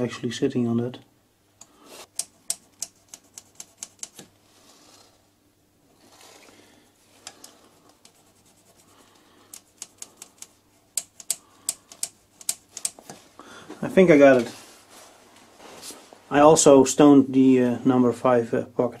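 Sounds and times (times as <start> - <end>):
stone rubbing on metal: 7.3 - 13.1
stone clicking against metal: 9.5 - 13.0.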